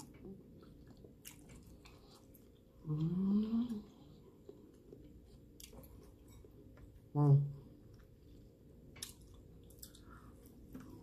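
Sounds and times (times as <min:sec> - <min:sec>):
person chewing: 0:00.0 - 0:07.0, 0:07.8 - 0:11.0
person humming mmm: 0:02.8 - 0:04.1.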